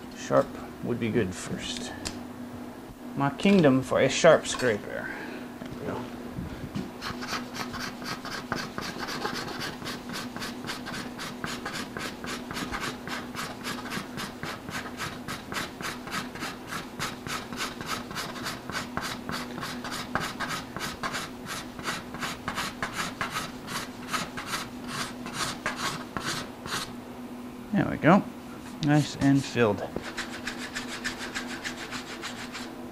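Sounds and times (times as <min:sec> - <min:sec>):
faint steady hum: 0:00.0 - 0:32.9
card scraper scraping epoxy: 0:07.0 - 0:26.9, 0:30.0 - 0:32.7.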